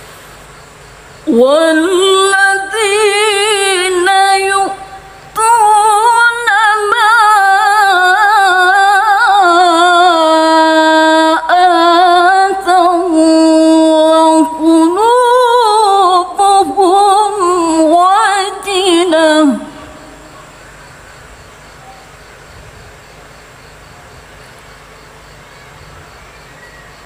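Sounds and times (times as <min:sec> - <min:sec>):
woman reciting melodically: 0:01.2 - 0:20.5.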